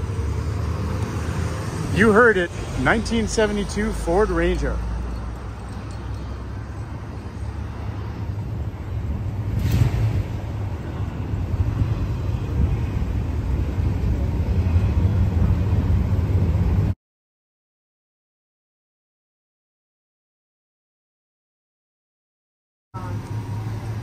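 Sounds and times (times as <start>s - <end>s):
city traffic: 0.0s - 17.0s, 23.0s - 24.0s.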